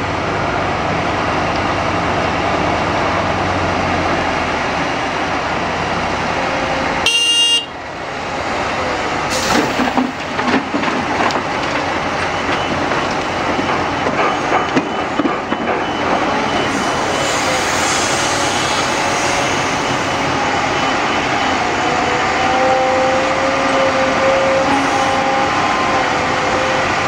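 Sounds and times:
excavator diesel engine under load: 0.0 - 27.0
short horn toot: 7.0 - 7.7.

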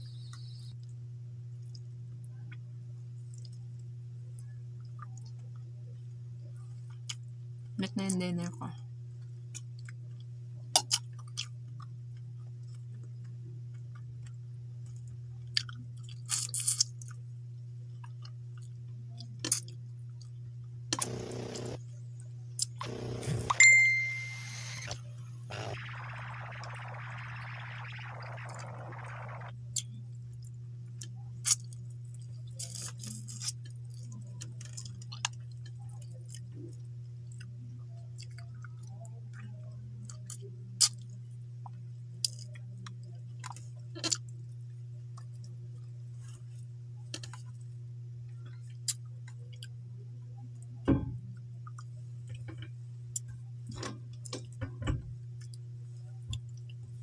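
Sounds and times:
steady low hum: 0.0 - 32.6
person chewing and mouth smacks: 13.9 - 17.2.

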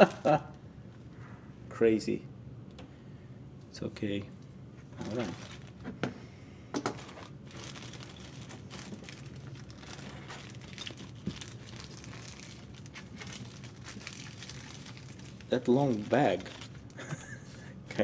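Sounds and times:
plastic bag crinkling: 4.9 - 5.8, 6.9 - 17.4.

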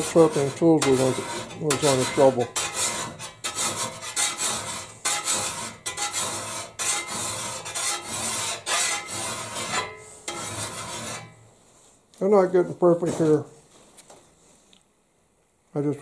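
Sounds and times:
file rasping on steel: 0.0 - 11.4.

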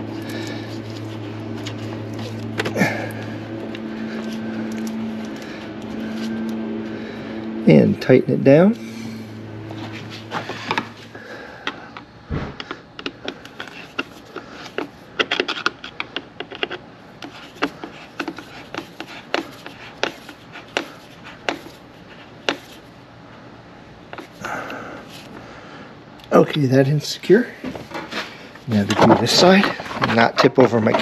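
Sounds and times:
thump: 12.3 - 12.6.

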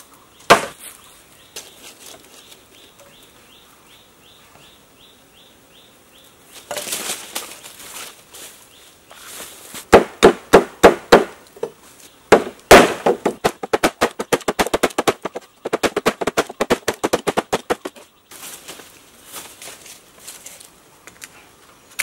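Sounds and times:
blade chopping bamboo: 0.5 - 0.8, 9.9 - 11.4, 12.3 - 18.1.

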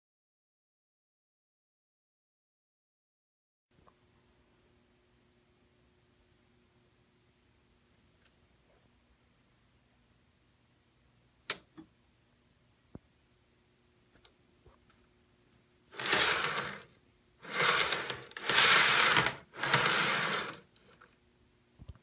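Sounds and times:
faint steady hum: 3.7 - 22.0
sharp click: 11.5 - 11.9
toy train wheels rumbling on track: 15.9 - 21.0.

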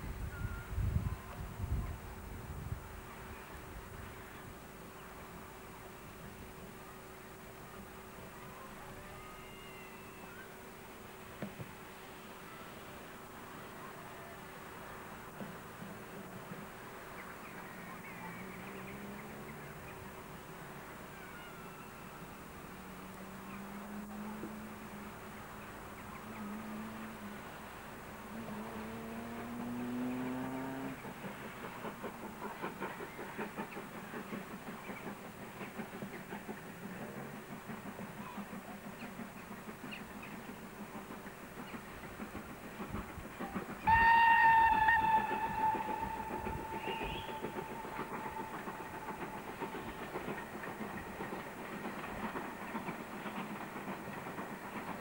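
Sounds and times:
rail noise: 0.0 - 55.0
steam locomotive exhaust beats: 0.0 - 55.0
train whistle: 8.5 - 10.6, 43.8 - 50.4.

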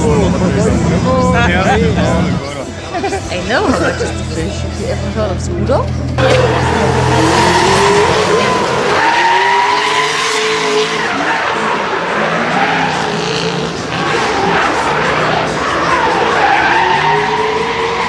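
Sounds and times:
car engine revving: 0.0 - 18.0
tyres squealing on tarmac: 6.2 - 18.0.

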